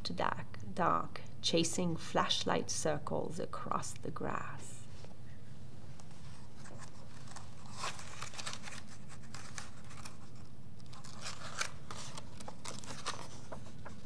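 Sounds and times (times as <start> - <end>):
book page turning: 5.9 - 14.0.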